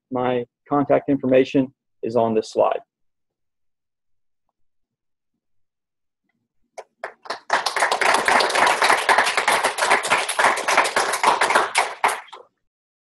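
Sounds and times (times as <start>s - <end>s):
hands clapping: 6.8s - 12.6s.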